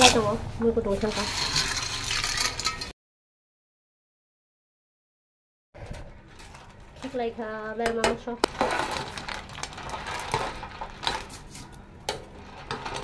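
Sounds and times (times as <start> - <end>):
metal ladle scraping a pot: 1.0 - 2.9, 8.5 - 13.0.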